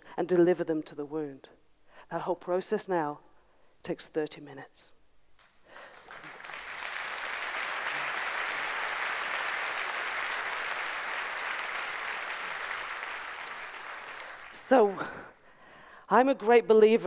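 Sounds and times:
audience applauding: 5.8s - 15.2s.

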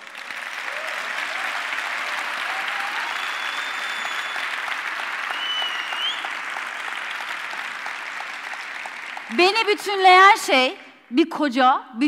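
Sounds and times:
audience applauding: 0.0s - 10.4s
high whistles: 2.8s - 4.6s, 5.3s - 7.0s.

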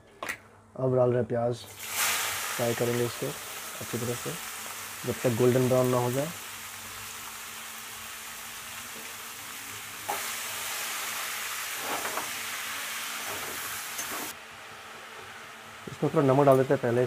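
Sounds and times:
onions sizzling in hot oil: 1.7s - 16.8s.

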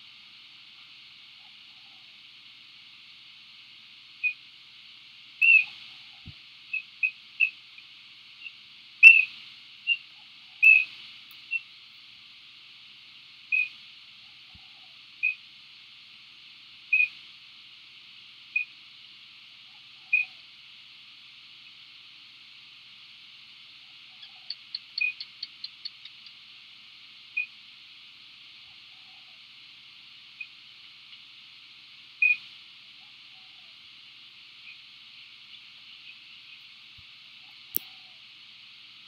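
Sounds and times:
background hiss: 0.0s - 39.0s
bird chirping: 5.4s - 5.7s, 10.6s - 10.9s, 24.1s - 26.4s.

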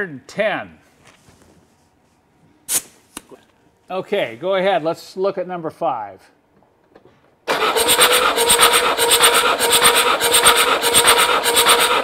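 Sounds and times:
engine cranking on starter: 7.5s - 12.0s.

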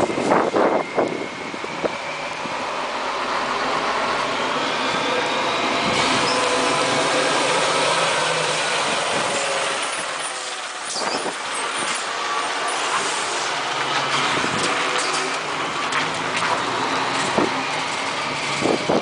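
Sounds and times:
truck diesel engine running: 0.0s - 19.0s
tyre and road noise: 0.0s - 19.0s.

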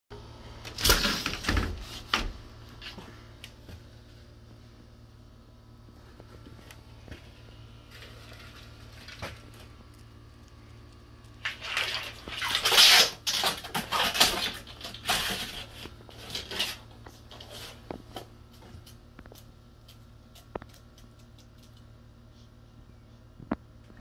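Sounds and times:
water splashing in a pool: 11.4s - 13.4s.

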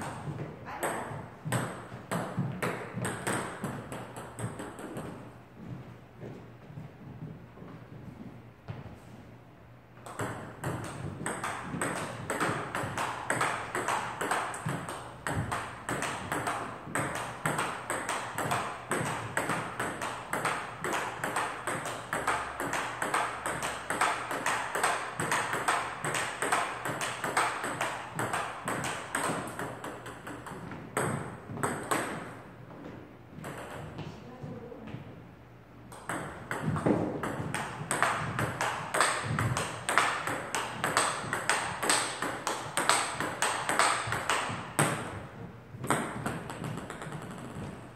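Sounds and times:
ping-pong ball clicking off paddles: 10.0s - 32.3s, 35.9s - 45.2s, 45.8s - 47.8s.

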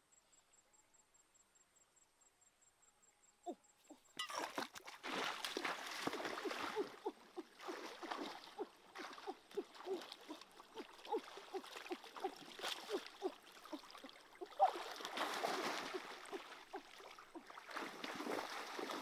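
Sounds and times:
gurgling water plops: 4.2s - 19.0s
hands splashing in stream water: 4.2s - 19.0s.

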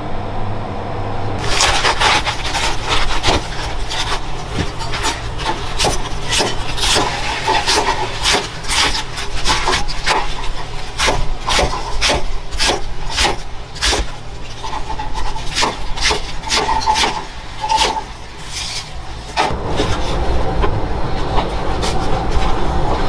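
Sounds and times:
knife chopping cabbage: 1.4s - 22.6s
dense steady noise: 17.3s - 23.0s.

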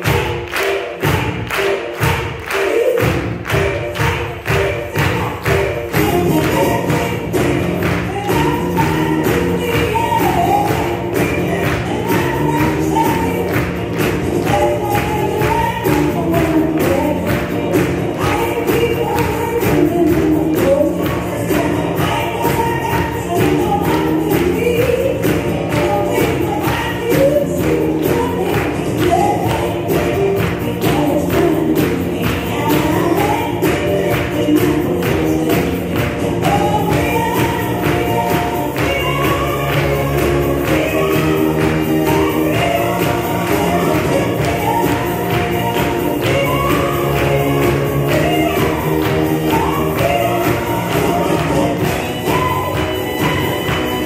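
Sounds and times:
choir singing over a beat: 0.0s - 54.0s.

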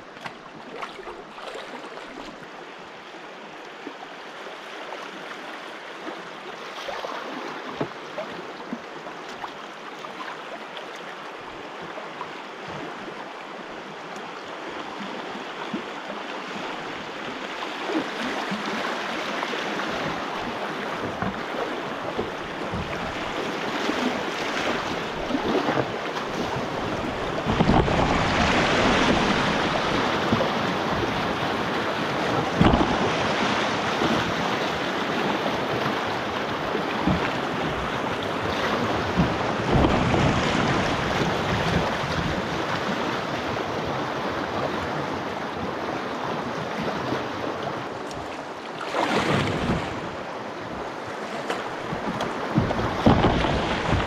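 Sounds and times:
river water rushing: 0.0s - 54.0s
wind buffeting microphone: 24.8s - 34.6s, 36.6s - 42.7s.

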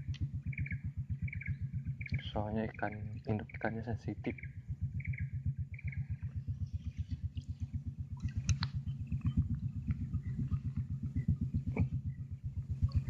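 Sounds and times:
boat engine pulsing slowly: 0.0s - 13.0s
faint clicks: 8.2s - 10.8s.

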